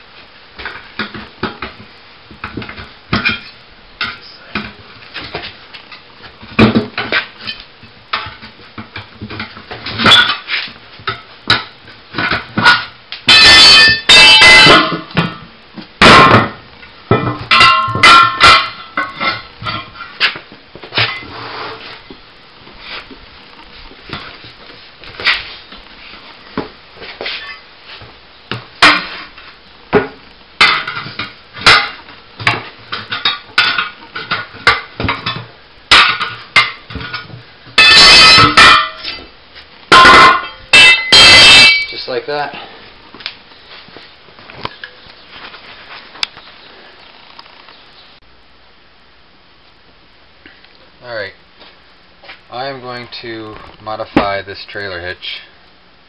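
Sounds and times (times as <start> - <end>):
ringing metal knocks: 11.5 - 15.4, 16.0 - 20.0, 30.0 - 39.3, 39.9 - 42.0.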